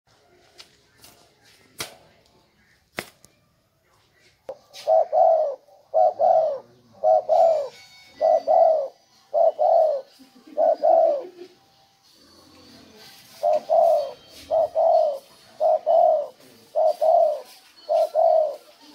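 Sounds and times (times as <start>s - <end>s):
dove cooing: 4.5s - 11.7s, 12.4s - 18.9s.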